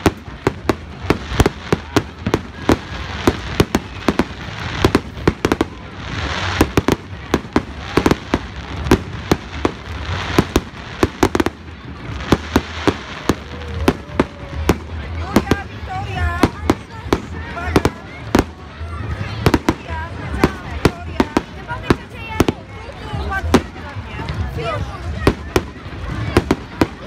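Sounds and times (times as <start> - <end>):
fireworks crackling hiss: 0.0 - 27.0.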